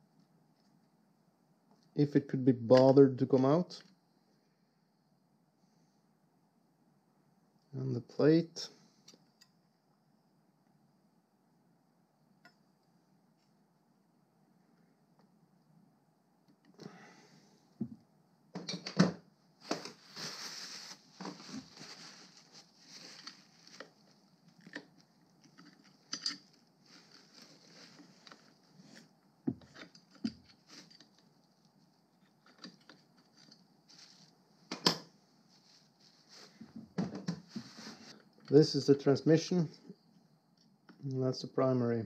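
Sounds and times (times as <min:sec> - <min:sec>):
paper towel rustling: 0:19.6 - 0:24.2, 0:26.8 - 0:29.0, 0:35.4 - 0:36.6, 0:37.5 - 0:38.2
metal parts clinking on workbench: 0:26.1 - 0:26.5.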